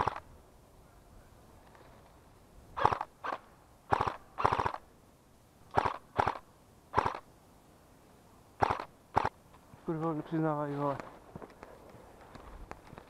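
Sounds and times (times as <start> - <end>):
airsoft gun full-auto bursts: 0.0 - 0.2, 2.8 - 4.8, 5.7 - 7.2, 8.6 - 9.4.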